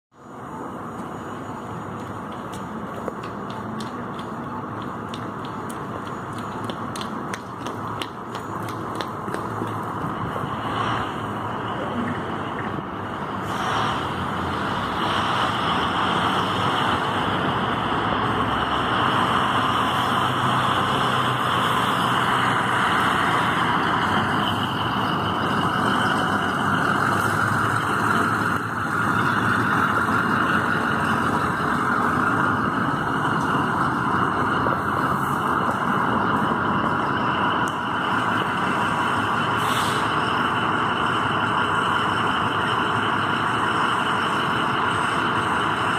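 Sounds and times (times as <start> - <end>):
truck engine and machinery noise: 0.1 - 45.9
hiss: 13.4 - 14.2, 39.6 - 40.2.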